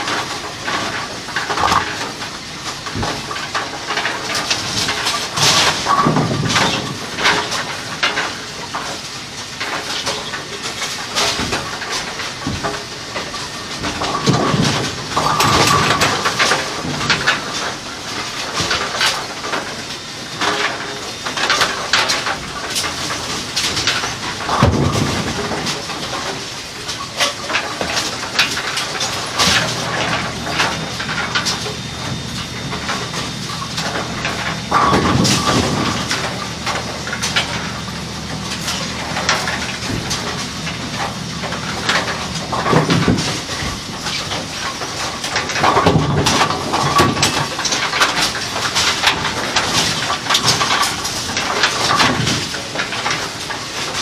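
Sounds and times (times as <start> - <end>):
pins knocking and clattering: 38.5 - 54.0.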